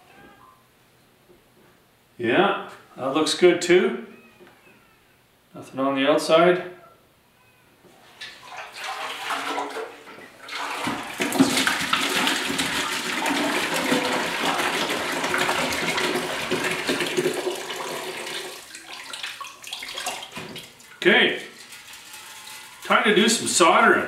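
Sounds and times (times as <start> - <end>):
liquid sloshing: 8.1 - 23.2
liquid pouring into plastic bucket: 8.2 - 23.0.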